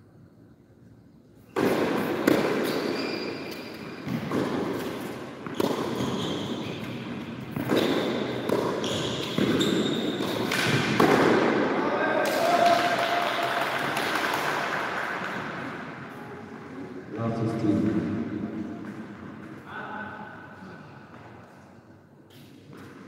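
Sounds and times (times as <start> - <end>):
sneakers squeaking on court: 1.4 - 10.9
tennis racket hitting ball: 1.6 - 11.6.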